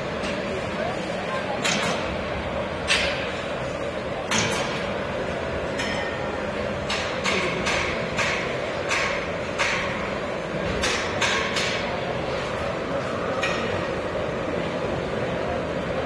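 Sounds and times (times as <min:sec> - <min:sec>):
sharp knocks echoing in a hall: 0:01.5 - 0:03.5, 0:04.1 - 0:14.6.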